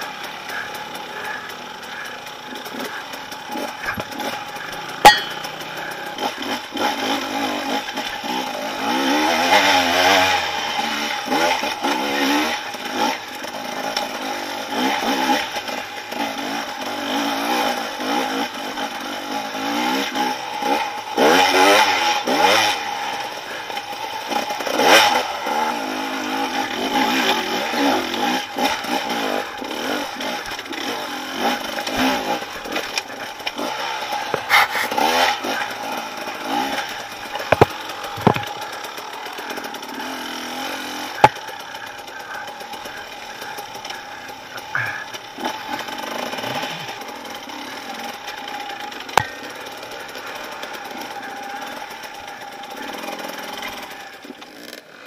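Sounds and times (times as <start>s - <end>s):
dirt bike engine revving: 0.0s - 55.0s
rocks clattering and scraping: 37.4s - 38.6s.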